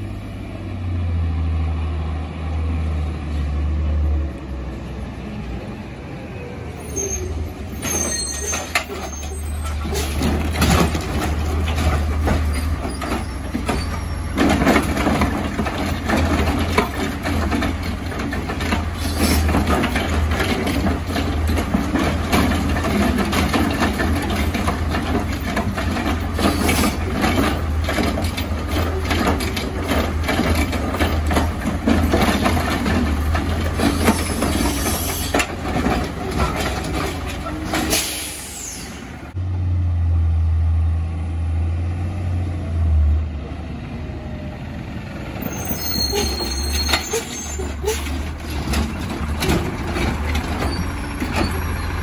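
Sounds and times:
truck engine droning: 0.0s - 52.0s
clanks and knocks: 7.9s - 38.1s, 45.9s - 52.0s.

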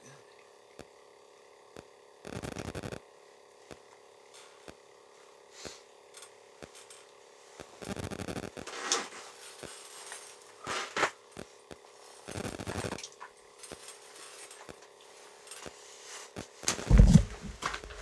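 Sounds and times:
phone handling bumps and rubbing: 16.7s - 18.0s.

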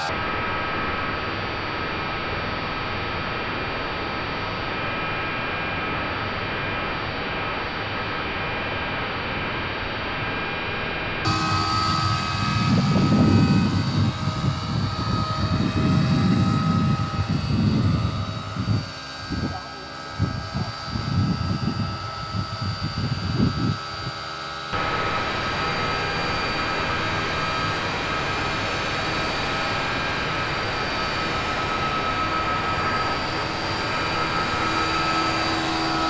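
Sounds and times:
helicopter rotor noise: 0.0s - 9.4s, 11.2s - 36.0s
low rumbling: 11.3s - 24.2s
model helicopter motor whine: 11.3s - 36.0s.

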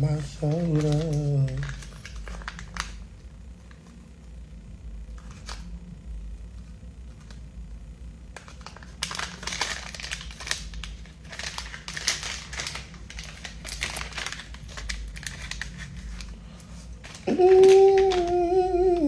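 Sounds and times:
crinkling and rustling in hands: 0.0s - 4.3s, 8.3s - 19.0s.

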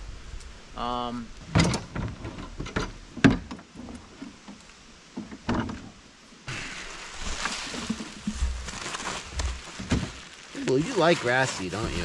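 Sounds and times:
seed pouring hiss and rustle: 6.5s - 12.0s.

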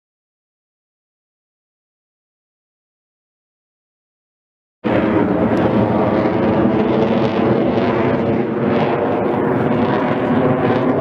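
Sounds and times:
jet aircraft engines: 4.8s - 11.0s.

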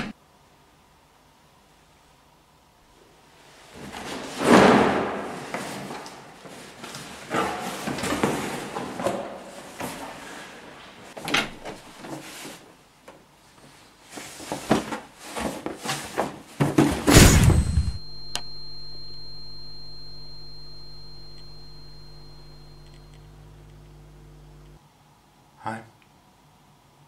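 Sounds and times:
loud burst sound effect: 17.1s - 19.5s
steady humming tone: 17.1s - 24.8s.

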